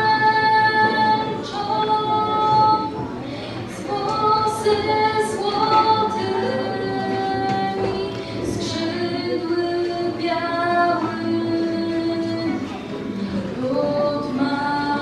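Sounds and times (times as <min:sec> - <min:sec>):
acoustic guitar: 0:00.0 - 0:15.0
woman singing: 0:00.0 - 0:15.0.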